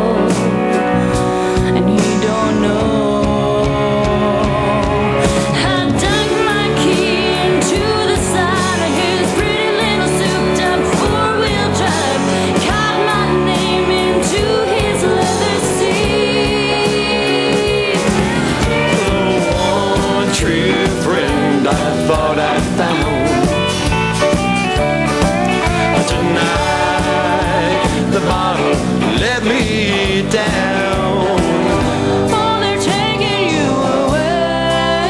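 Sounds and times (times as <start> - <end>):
woman singing: 0.0 - 23.5, 32.2 - 35.0
country band playing: 0.0 - 35.0.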